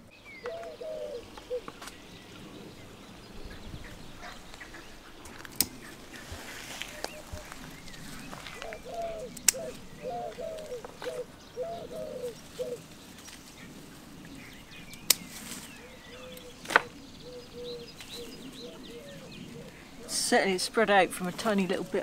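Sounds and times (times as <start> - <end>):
bird hooting: 0.4 - 1.8, 8.3 - 12.8, 15.8 - 20.2
secateurs snipping stems: 5.3 - 5.8, 8.6 - 9.8.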